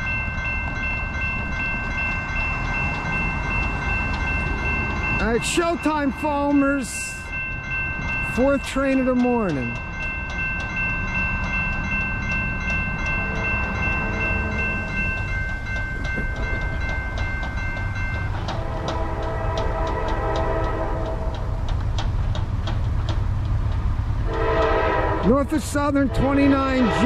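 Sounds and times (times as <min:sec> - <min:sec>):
crossing warning bell ringing: 0:00.0 - 0:21.8, 0:24.2 - 0:27.0
locomotive air horn: 0:18.6 - 0:21.4, 0:24.3 - 0:25.4, 0:26.0 - 0:27.0.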